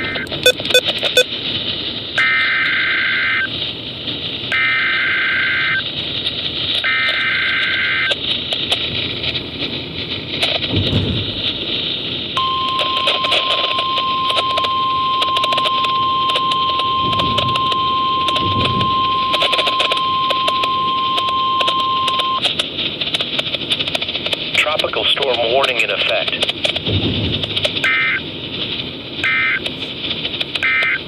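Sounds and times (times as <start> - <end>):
high alarm tone: 0.0 - 1.3, 2.2 - 3.5, 4.5 - 5.8, 6.8 - 8.2, 12.4 - 22.4, 27.5 - 28.2, 29.2 - 29.7, 30.6 - 31.0
radio static: 0.0 - 1.3, 2.2 - 3.6, 4.5 - 5.9, 6.8 - 8.9, 10.3 - 31.0.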